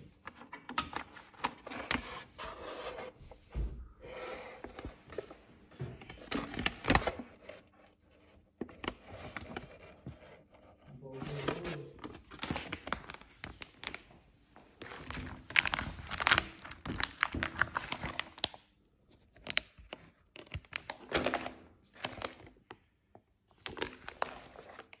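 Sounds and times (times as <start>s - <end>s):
plastic bag crinkling: 11.2s - 18.5s.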